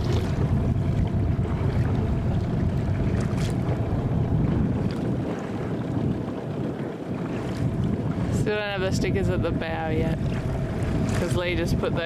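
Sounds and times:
water splash: 0.0 - 0.6
water lapping: 0.0 - 12.0
wind buffeting microphone: 0.0 - 12.0.

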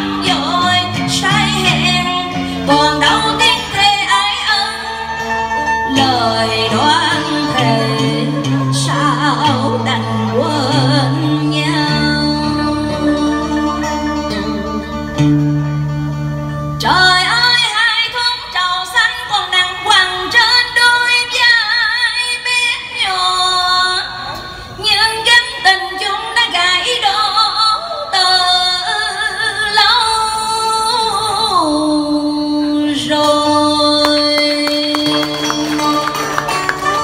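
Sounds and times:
woman singing into a microphone: 0.0 - 15.0, 16.8 - 37.0.

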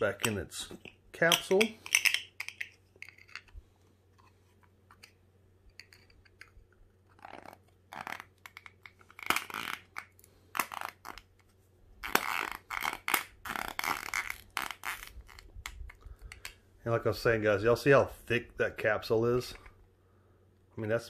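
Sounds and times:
plastic capsule clicks and taps: 0.2 - 3.5.

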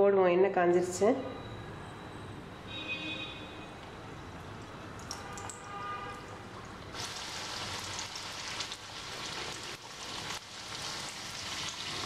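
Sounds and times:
food deep-frying in hot oil: 6.5 - 12.0
fine crackles of frying: 6.7 - 12.0.

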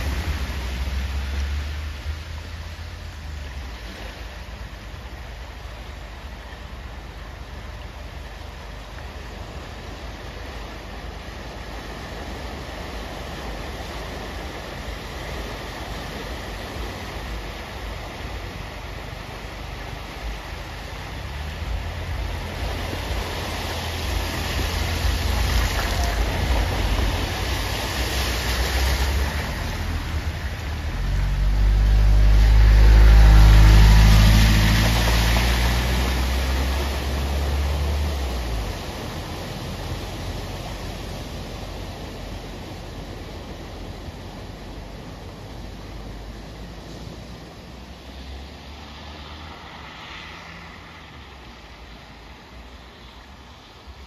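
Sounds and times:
rush of floodwater: 0.0 - 54.0
tyres splashing through water: 0.0 - 54.0
car engine passing: 11.2 - 54.0.

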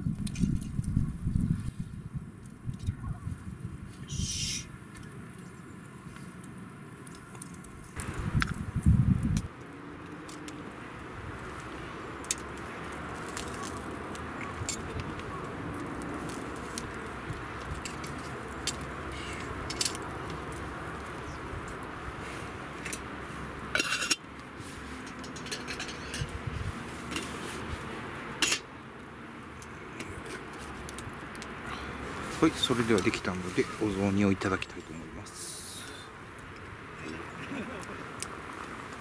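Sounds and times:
wood fire crackling: 0.0 - 39.0
metal cookware clinking: 25.1 - 26.3.

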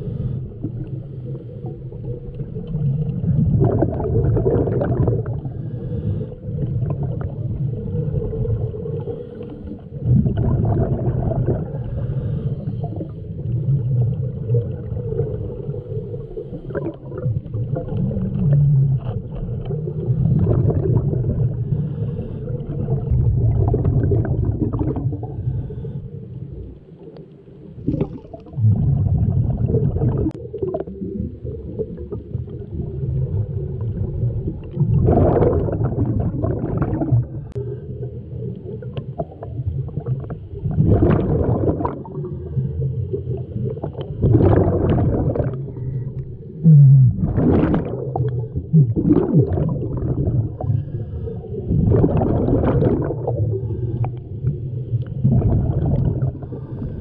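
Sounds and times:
diver breathing through regulator: 0.0 - 2.0, 5.2 - 6.8, 8.8 - 10.0, 11.6 - 13.6, 21.4 - 23.1, 24.8 - 27.0, 50.5 - 51.8, 56.3 - 57.0
bubbles gurgling underwater: 0.0 - 25.9, 26.5 - 57.0.

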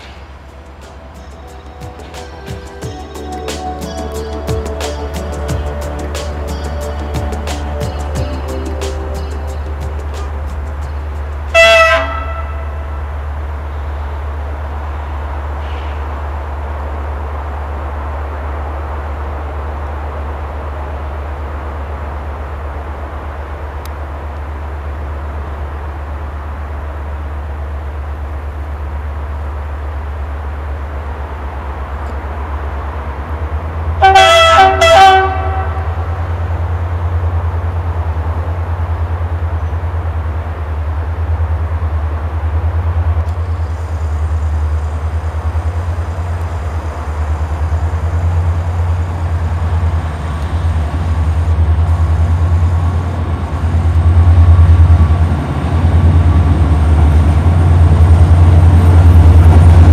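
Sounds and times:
diesel locomotive engine rumble: 0.0 - 59.9
locomotive horn blasts: 11.4 - 13.1, 34.0 - 36.5.

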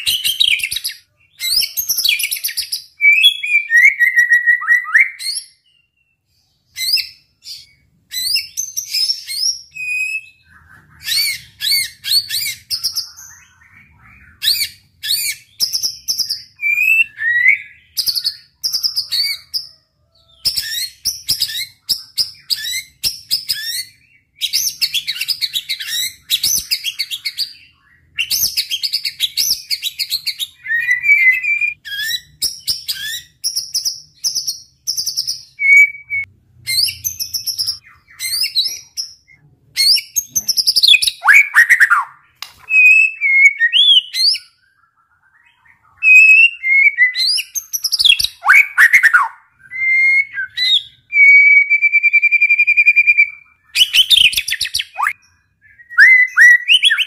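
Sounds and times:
songbird singing whistles and runs: 20.4 - 57.0.

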